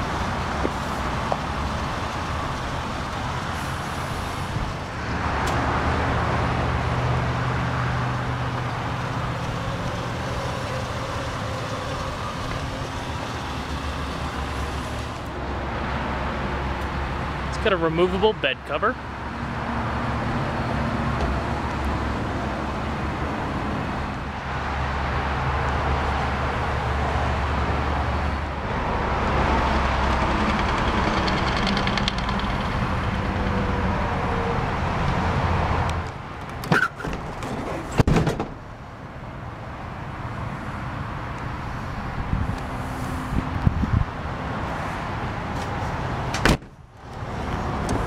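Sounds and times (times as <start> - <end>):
truck engine idling: 6.0 - 15.5
truck bed clunks: 36.4 - 38.8, 46.3 - 46.8.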